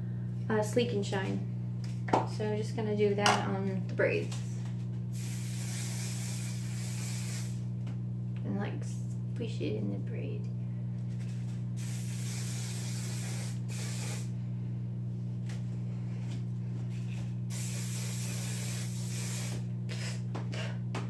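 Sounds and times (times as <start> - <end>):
low hum: 0.0 - 21.0
hairspray can spraying: 5.1 - 7.6, 11.8 - 14.3, 17.5 - 19.7.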